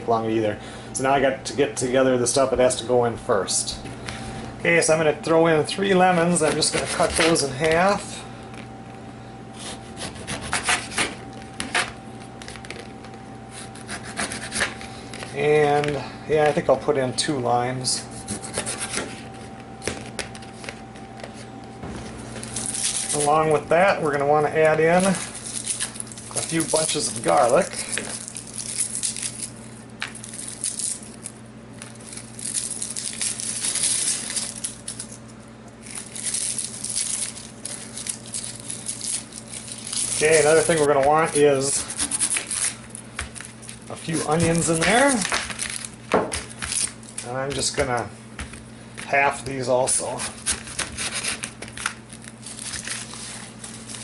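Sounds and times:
steady low hum: 0:00.0 - 0:54.0
blade scraping paper plate: 0:06.2 - 0:07.9, 0:09.6 - 0:12.0, 0:13.5 - 0:15.9, 0:18.0 - 0:19.5, 0:49.9 - 0:52.0
knife sawing through lemons: 0:06.4 - 0:07.4, 0:09.6 - 0:11.2, 0:13.5 - 0:14.8, 0:18.0 - 0:19.1, 0:50.0 - 0:51.6
garlic skins crinkling: 0:22.4 - 0:48.1.

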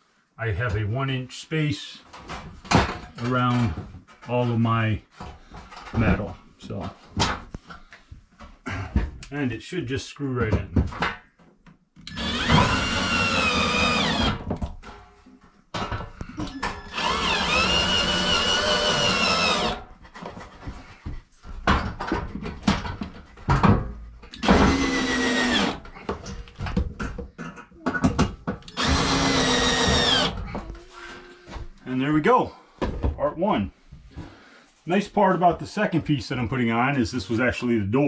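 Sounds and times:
cordless drill driving screws: 0:12.0 - 0:14.5, 0:16.5 - 0:19.8, 0:24.4 - 0:25.9, 0:28.6 - 0:30.4.

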